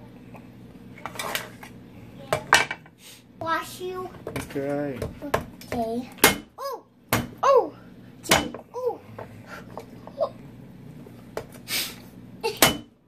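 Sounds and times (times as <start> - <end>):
child's high voice: 5.7 - 7.8
cleaver chopping on wooden board: 6.2 - 6.5.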